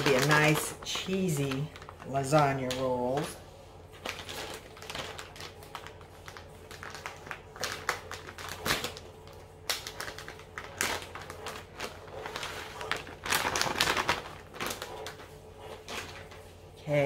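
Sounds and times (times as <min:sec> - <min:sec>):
plastic bag crinkling: 0:00.0 - 0:16.8.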